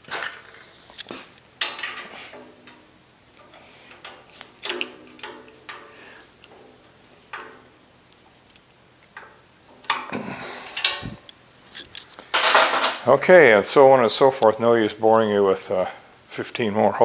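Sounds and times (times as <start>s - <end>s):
screwdriver clicks and scrapes on metal: 0.0s - 10.1s
metal clatter: 1.6s - 7.8s, 12.2s - 13.1s.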